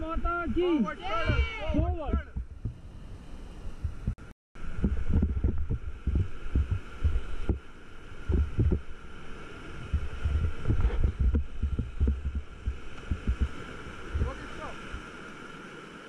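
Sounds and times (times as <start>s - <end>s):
waves thumping on inflatable raft: 0.0s - 16.0s.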